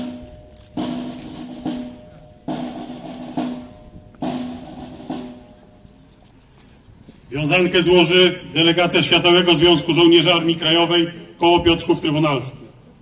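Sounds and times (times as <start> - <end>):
drum beating slowly: 0.0 - 6.2.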